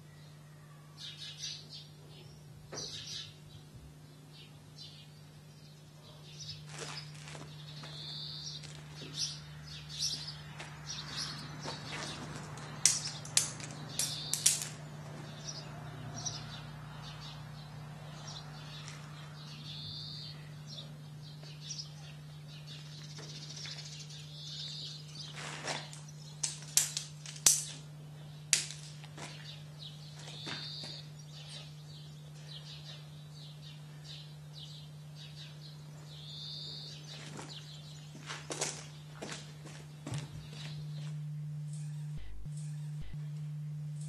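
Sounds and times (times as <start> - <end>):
birds chirping: 0.0 - 26.6, 29.2 - 43.6
steady low hum: 0.0 - 44.0
sharp clicks: 12.8 - 14.8.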